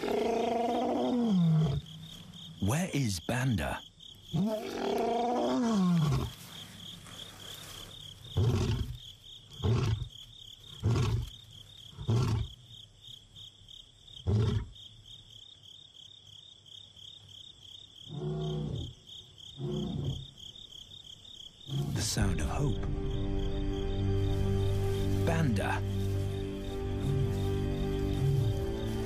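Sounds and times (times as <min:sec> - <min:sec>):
lion roaring: 0:00.0 - 0:01.9, 0:04.3 - 0:06.4, 0:08.4 - 0:09.0, 0:19.6 - 0:20.2, 0:21.7 - 0:22.3
insects trilling: 0:00.0 - 0:29.0.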